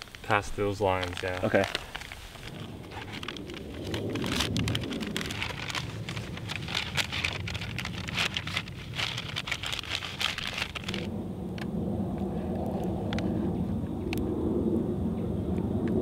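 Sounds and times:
plastic bag crinkling: 0:00.0 - 0:11.1
steady low rumble: 0:00.0 - 0:16.0.

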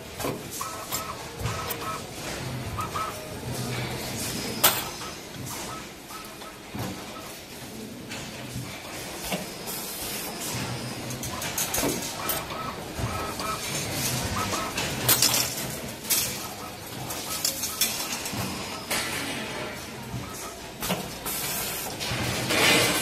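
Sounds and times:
workshop machine noise: 0:00.0 - 0:23.0
steel wire parts clinking: 0:13.6 - 0:19.7.

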